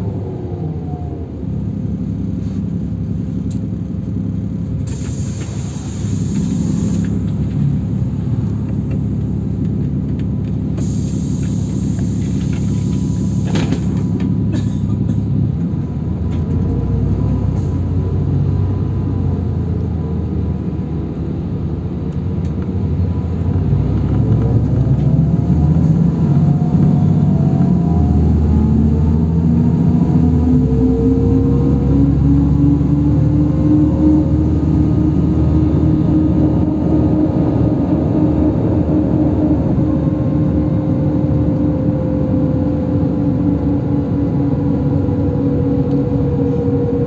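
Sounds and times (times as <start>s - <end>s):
rising whine: 0.0s - 3.6s, 23.0s - 47.0s
bus engine and road rumble: 0.0s - 47.0s
short bursts of hiss: 4.9s - 7.1s.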